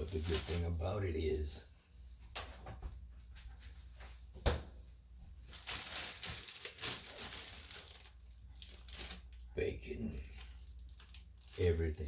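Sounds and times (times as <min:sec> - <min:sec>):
plastic bag crinkling: 0:00.0 - 0:00.8, 0:05.4 - 0:12.0.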